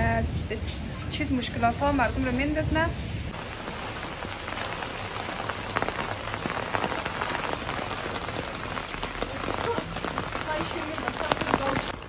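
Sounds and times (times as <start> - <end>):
rain on pavement: 0.0 - 12.0.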